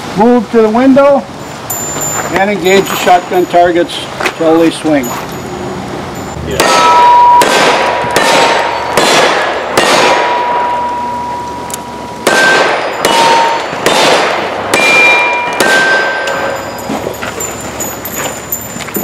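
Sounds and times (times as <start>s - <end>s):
steel target ringing: 1.7s - 18.8s
revolver shots: 6.5s - 11.3s, 12.2s - 16.6s.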